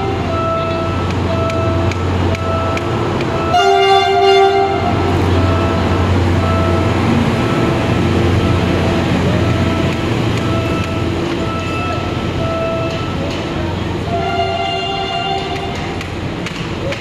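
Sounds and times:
locomotive horn blast: 0.0 - 8.7, 14.0 - 16.0
diesel engine rumbling: 0.0 - 17.0.

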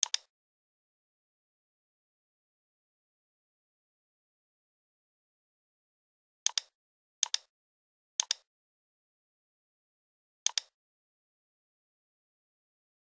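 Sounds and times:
computer mouse clicks: 0.0 - 0.3, 6.5 - 7.5, 8.2 - 8.5, 10.4 - 10.8.

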